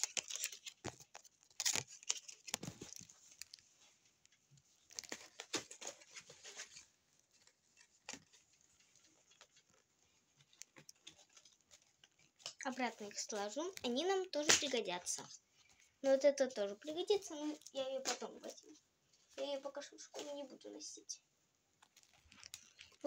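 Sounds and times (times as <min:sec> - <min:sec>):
paper and cardboard rustling: 0:00.0 - 0:15.9.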